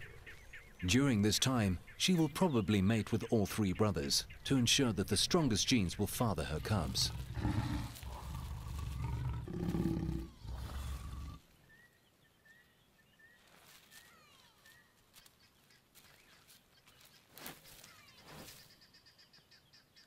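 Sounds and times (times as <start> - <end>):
lions growling and snarling: 6.6 - 11.4
faint bird chirps: 10.2 - 20.0.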